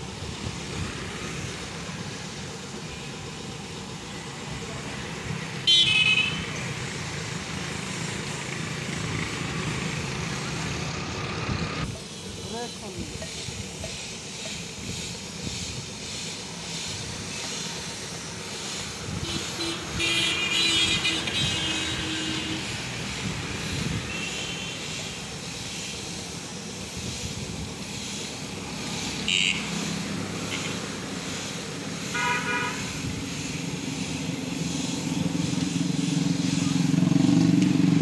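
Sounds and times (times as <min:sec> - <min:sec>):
paint spray gun hissing: 0:00.0 - 0:38.0
street traffic: 0:00.0 - 0:38.0
vehicle horns tooting: 0:05.6 - 0:06.6, 0:19.1 - 0:23.0, 0:23.9 - 0:25.0, 0:29.2 - 0:29.8, 0:32.0 - 0:33.1.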